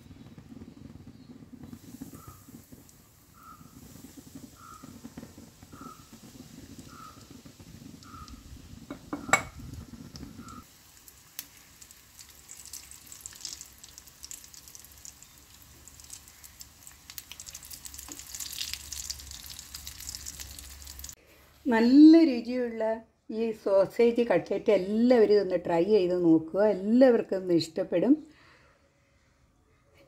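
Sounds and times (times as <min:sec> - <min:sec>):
oil sizzling and crackling: 0:00.0 - 0:21.2.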